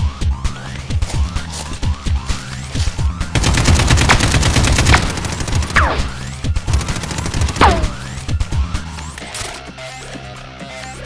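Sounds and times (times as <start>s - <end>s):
automatic gunfire: 3.4s - 8.3s.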